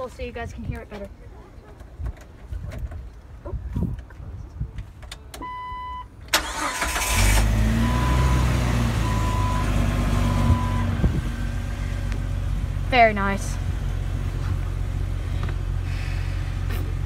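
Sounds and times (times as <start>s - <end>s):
car engine starting and idling: 5.4s - 17.0s.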